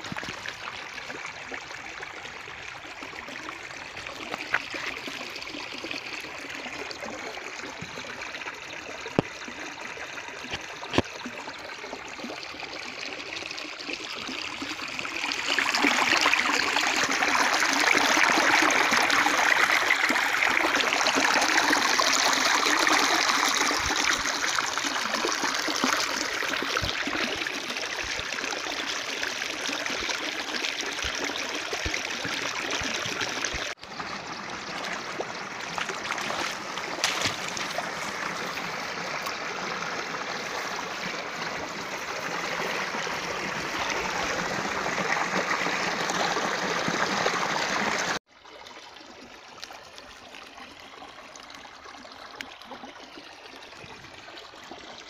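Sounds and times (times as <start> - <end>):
stream rushing over rocks: 15.0 - 48.2.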